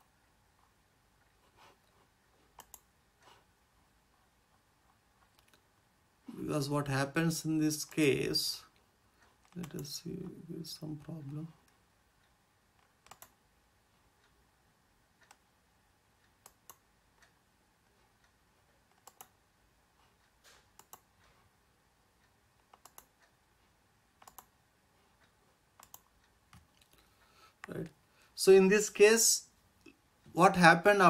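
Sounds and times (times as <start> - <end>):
faint computer mouse clicks: 2.6 - 3.4, 11.6 - 13.4, 16.2 - 17.3, 18.9 - 19.4, 20.3 - 21.1, 22.7 - 23.3, 24.2 - 24.5, 25.2 - 27.8.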